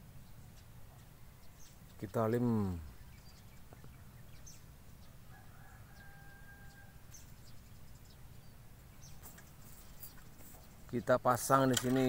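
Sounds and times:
rooster crowing: 0:05.2 - 0:07.1.

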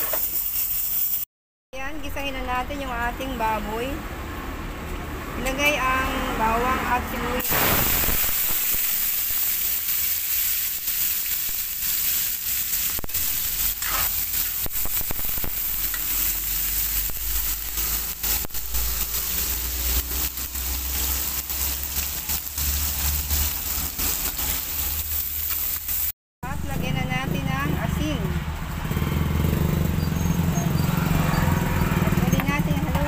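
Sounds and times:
onion sizzling in hot oil: 0:00.0 - 0:01.3, 0:07.4 - 0:26.2
metal spatula scraping a wok: 0:11.3 - 0:22.1.

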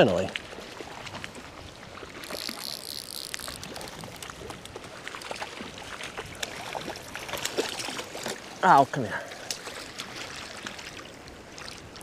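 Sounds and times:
stream water flowing: 0:00.0 - 0:12.0
fish splashing at surface: 0:02.0 - 0:08.4.

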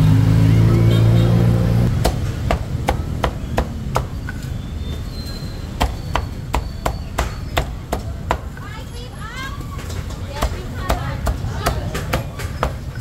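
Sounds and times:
low engine hum: 0:00.0 - 0:04.9.

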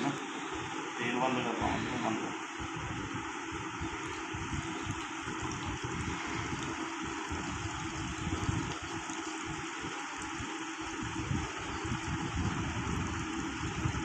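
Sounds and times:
petrol pouring into fuel tank: 0:03.7 - 0:13.7.

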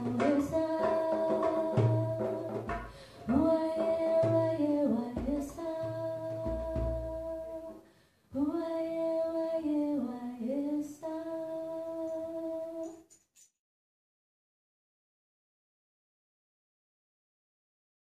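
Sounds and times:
low drum notes: 0:00.0 - 0:07.8.

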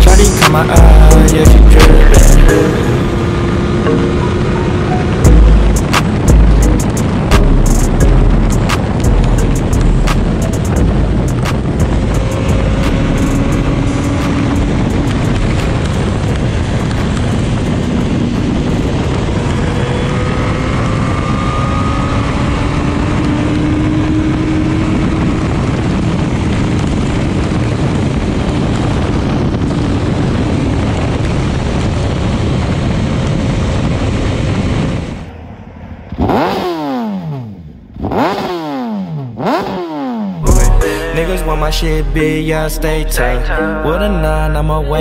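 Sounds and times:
motorcycle engine revving: 0:00.0 - 0:35.4, 0:36.0 - 0:42.7
loud wind noise: 0:00.0 - 0:43.3
motorcycle engine cruising: 0:00.0 - 0:45.0.

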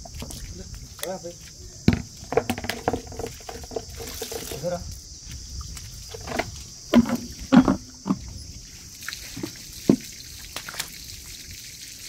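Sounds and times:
water hose hissing: 0:00.0 - 0:04.9, 0:06.1 - 0:12.0
sharp knocks and scrapes: 0:01.9 - 0:04.8, 0:06.1 - 0:08.4.

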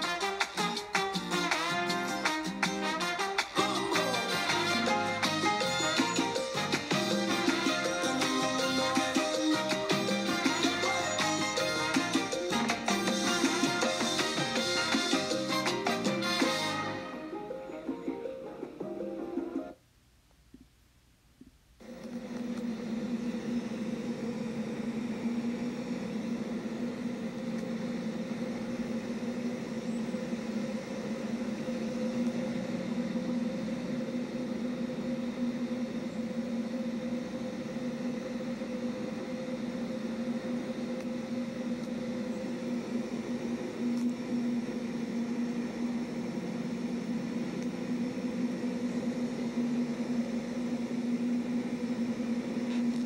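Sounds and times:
low mechanical hum: 0:00.0 - 0:53.0
background noise: 0:17.0 - 0:21.8.

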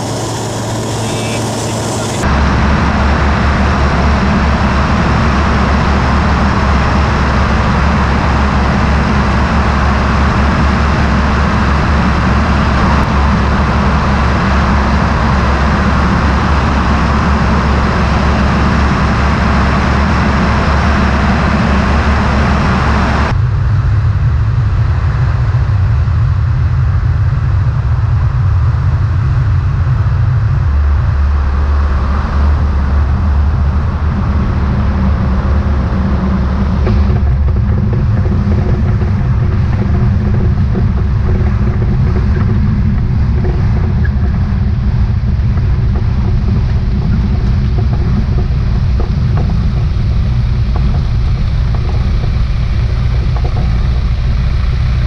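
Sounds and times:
rushing air over wing: 0:00.0 - 0:23.3
light aircraft engine and propeller: 0:00.0 - 0:55.0.

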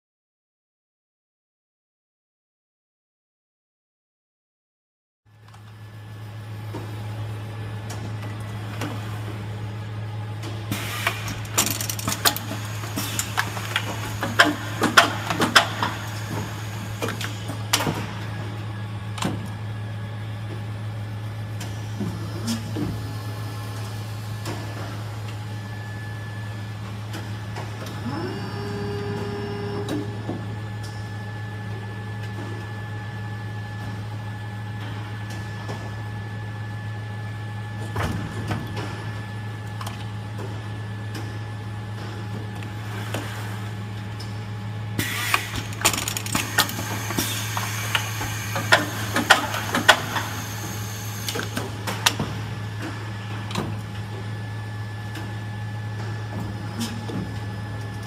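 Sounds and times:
machine humming: 0:21.9 - 0:32.2.

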